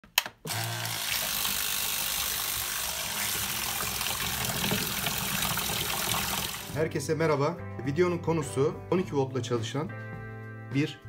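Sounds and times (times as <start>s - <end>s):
pump motor humming: 0.5s - 6.8s
water jet splashing in tub: 0.5s - 6.8s.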